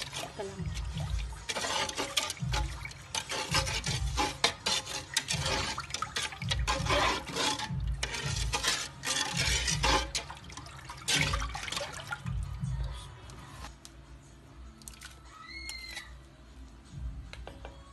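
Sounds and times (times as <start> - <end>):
sauce sloshing and squelching: 0.0 - 12.6.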